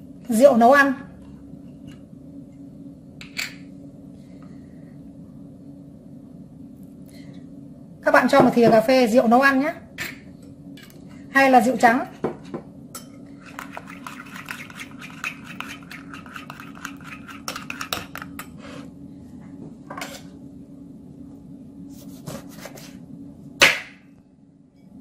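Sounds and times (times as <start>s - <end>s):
steady low hum: 0.0s - 25.0s
spoon clinking and scraping bowl: 13.0s - 18.6s.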